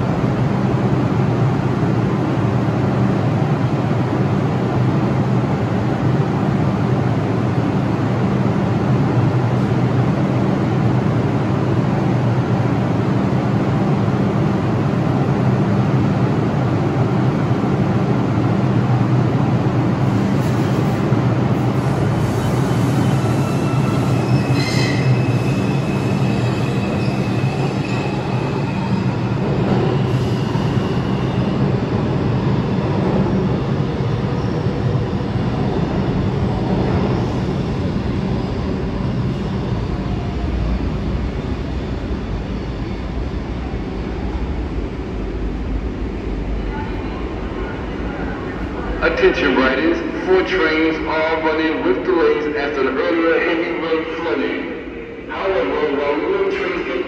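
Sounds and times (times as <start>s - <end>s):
subway train rumbling: 0.0s - 57.0s
high wheel squeal: 22.8s - 29.2s.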